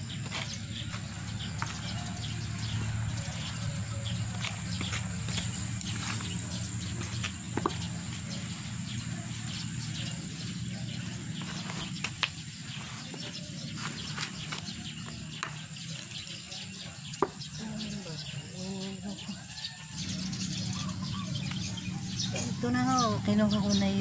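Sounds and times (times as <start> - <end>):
trowel scraping soil in plastic basin: 0.2 - 9.6, 11.0 - 16.2.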